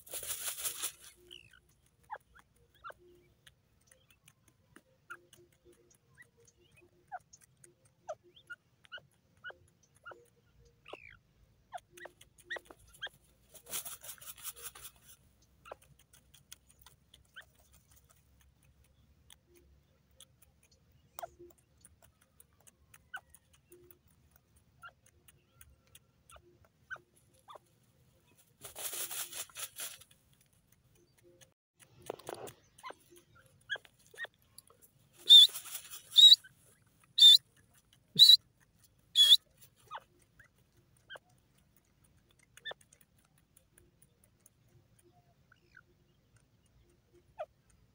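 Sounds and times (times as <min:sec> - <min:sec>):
feathers rustling: 0:00.0 - 0:01.2, 0:28.6 - 0:30.0, 0:35.2 - 0:36.3
scrapes and clicks of earth: 0:28.6 - 0:36.2.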